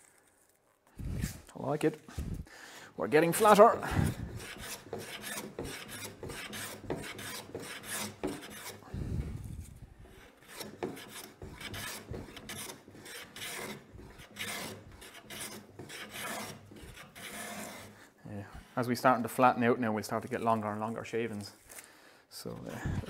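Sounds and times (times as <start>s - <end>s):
hand plane scraping wood: 3.2s - 18.1s.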